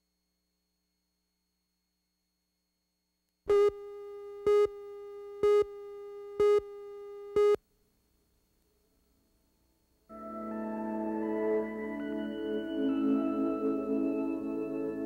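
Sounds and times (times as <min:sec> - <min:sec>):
countdown beeps: 0:03.5 - 0:07.6
steady low electronic tone: 0:03.5 - 0:07.6.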